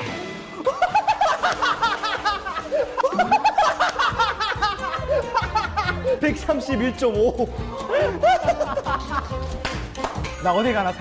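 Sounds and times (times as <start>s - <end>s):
young men laughing: 0.6s - 6.6s, 7.2s - 9.5s.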